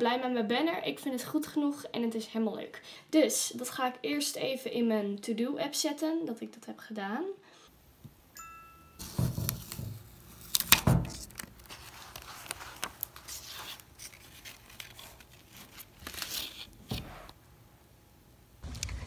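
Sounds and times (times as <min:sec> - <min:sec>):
paper notes rustling and crinkling: 0:09.0 - 0:17.4.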